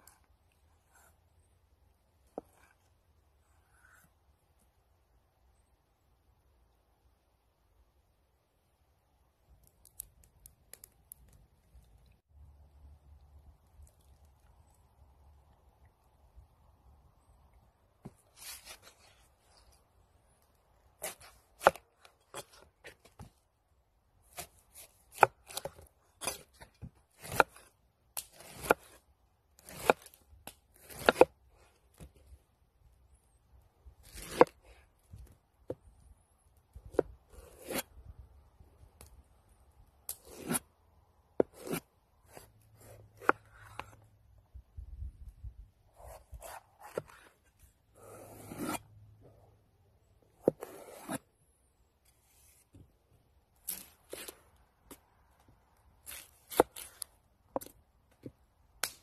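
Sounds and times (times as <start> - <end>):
knife cutting on wooden board: 27.2 - 27.6, 28.3 - 28.9, 30.8 - 31.3, 36.9 - 37.8, 40.2 - 40.6, 41.4 - 44.0, 46.0 - 47.3, 48.0 - 48.8, 50.4 - 51.2.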